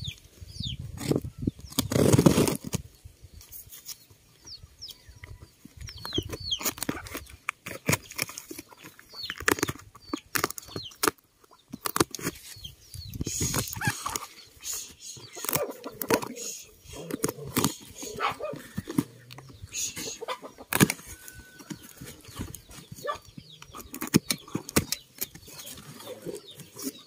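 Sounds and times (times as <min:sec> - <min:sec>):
bird chirps: 0:00.0 - 0:02.0, 0:03.3 - 0:27.0
pruning shears cutting cardboard: 0:01.0 - 0:02.8, 0:06.6 - 0:11.2, 0:15.2 - 0:27.0
cardboard crackling and rustling: 0:01.0 - 0:02.9.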